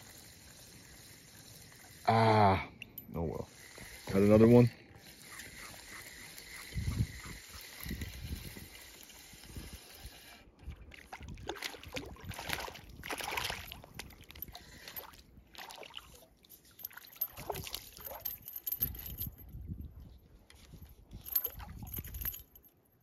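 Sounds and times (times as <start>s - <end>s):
fish splashing and thrashing: 10.6s - 18.2s.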